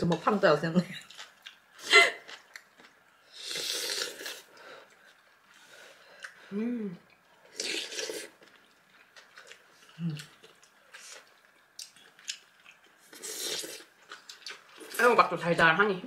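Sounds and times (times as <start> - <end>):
chewing food: 0.9 - 15.0
person humming approval: 6.5 - 7.0.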